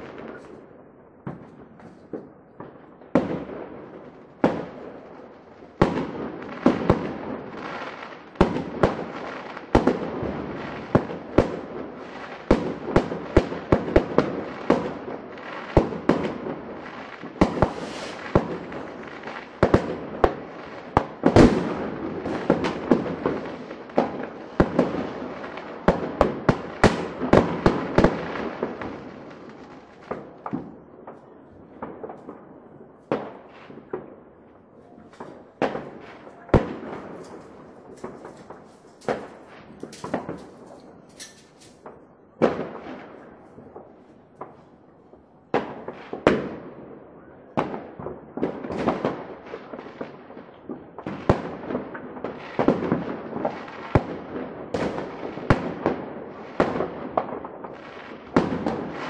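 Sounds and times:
firework bangs and pops: 0:00.0 - 0:46.9, 0:47.5 - 0:59.0
crackling hiss: 0:17.5 - 0:19.6.

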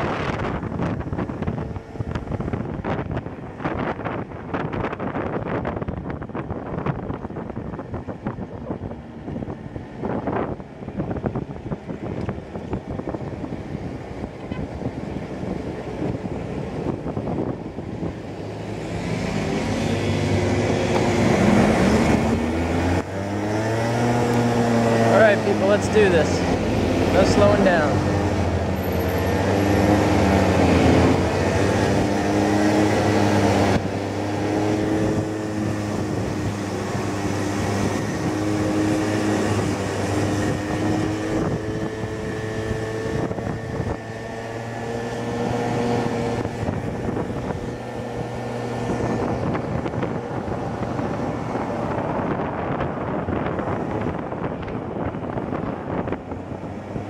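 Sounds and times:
wind noise on microphone: 0:00.0 - 0:57.0
motor scooter engine running: 0:06.8 - 0:57.0.

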